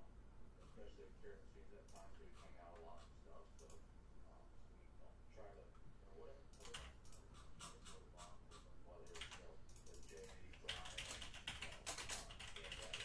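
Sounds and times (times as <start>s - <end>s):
keyboard typing: 6.6s - 13.0s.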